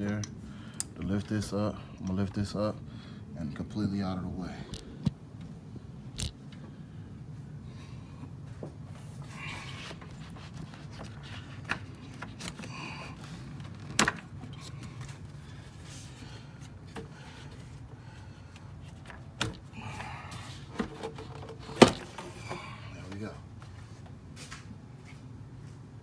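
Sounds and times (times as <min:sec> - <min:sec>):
steady low hum: 0:00.0 - 0:26.0
plastic rustling and scraping: 0:09.0 - 0:17.9, 0:18.8 - 0:22.6.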